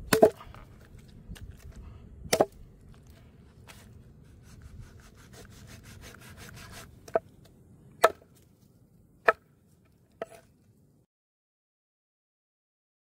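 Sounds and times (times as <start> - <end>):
cleaver chopping on wooden board: 0.1 - 0.4, 2.3 - 2.6, 8.0 - 8.2
cleaver rasping on meat: 4.3 - 6.9.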